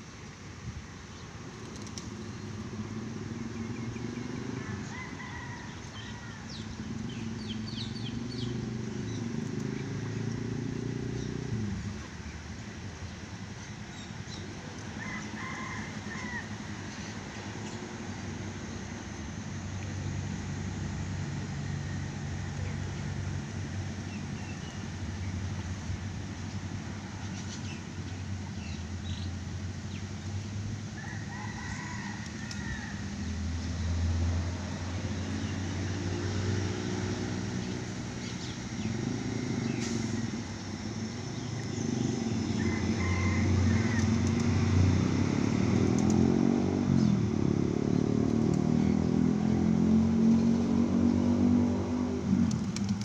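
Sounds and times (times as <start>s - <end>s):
engine hum: 0.0s - 53.0s
rooster crowing: 4.4s - 6.7s, 15.0s - 16.7s, 31.0s - 33.4s, 42.4s - 44.8s.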